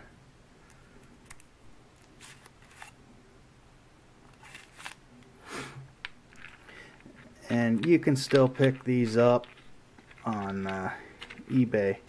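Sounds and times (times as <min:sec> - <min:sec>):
clicks and scrapes handling knife: 0:06.3 - 0:11.7.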